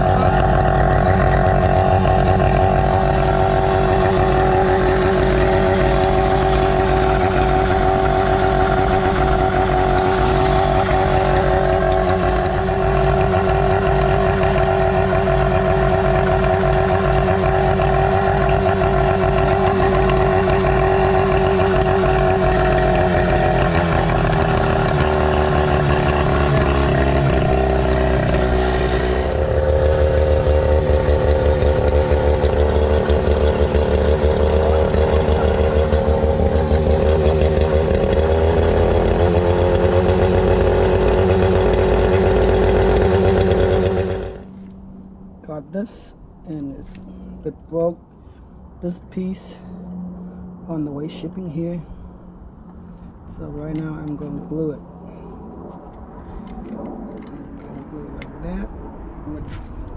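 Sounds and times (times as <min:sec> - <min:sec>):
outboard motor running: 0:00.0 - 0:45.4.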